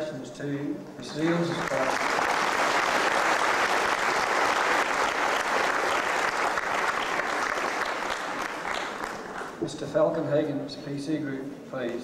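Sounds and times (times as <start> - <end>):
audience applauding: 1.1 - 9.6.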